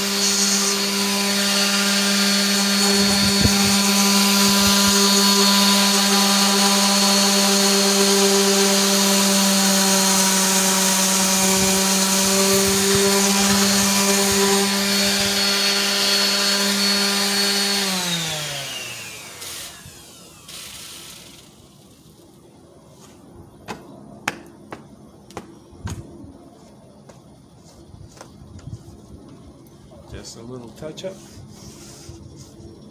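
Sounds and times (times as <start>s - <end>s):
orbit sander running on wood: 0.0s - 22.3s
sander motor winding down: 0.0s - 22.3s.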